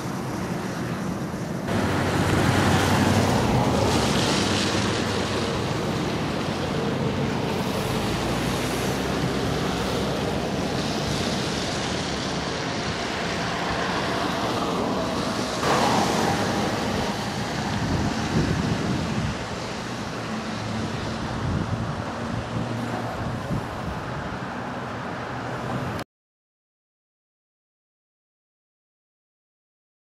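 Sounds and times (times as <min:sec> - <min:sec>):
rain hiss: 0:00.1 - 0:22.9
wind buffeting microphone: 0:01.0 - 0:24.6.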